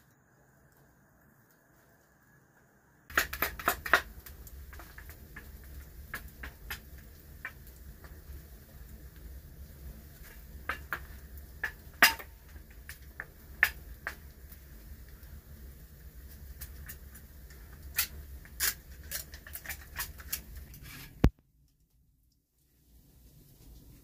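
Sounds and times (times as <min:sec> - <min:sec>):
campfire crackling and popping: 0:03.1 - 0:21.9.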